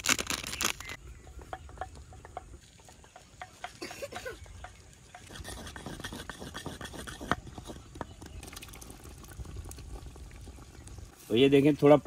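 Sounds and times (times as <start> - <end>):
spoon scraping a pot: 4.4 - 8.4.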